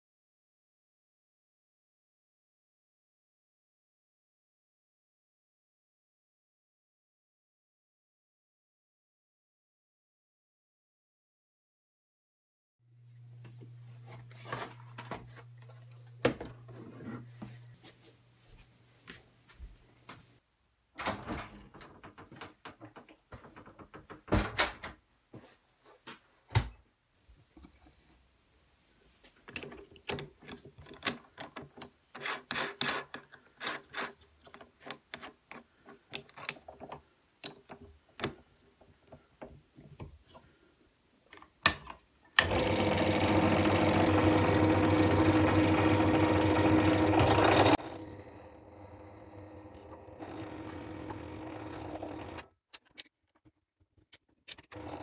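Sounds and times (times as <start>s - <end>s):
drill press boring into wood: 42.4s - 52.4s.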